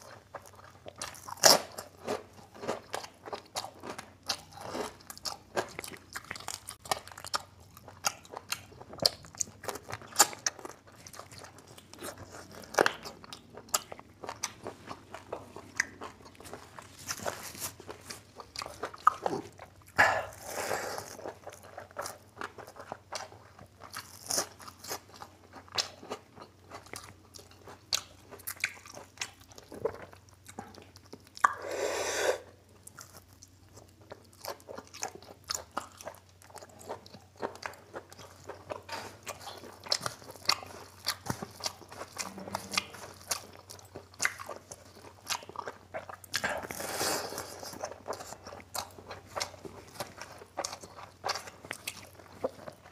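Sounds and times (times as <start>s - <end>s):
chewing and crunching food: 0.0s - 52.9s
wet mouth clicks: 31.4s - 31.7s.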